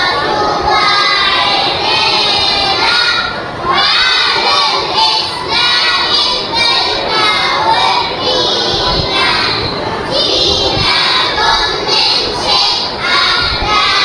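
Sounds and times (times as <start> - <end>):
children's choir singing: 0.0 - 14.0.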